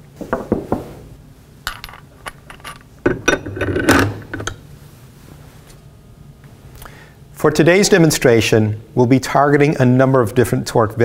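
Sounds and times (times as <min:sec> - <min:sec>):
metal tool parts clinking: 0:01.7 - 0:04.6.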